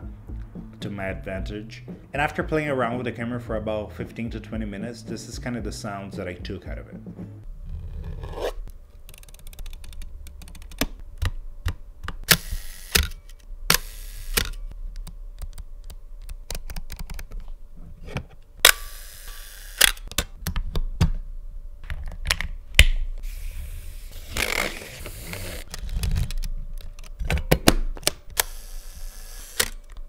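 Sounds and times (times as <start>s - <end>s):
film camera mechanical clicks: 12.3s - 14.6s, 18.6s - 20.2s, 28.0s - 30.0s.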